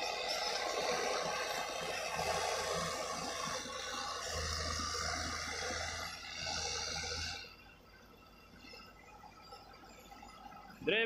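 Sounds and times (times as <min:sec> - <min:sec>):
bulldozer working soil: 0:00.0 - 0:07.6
excavator engine running: 0:00.0 - 0:08.2.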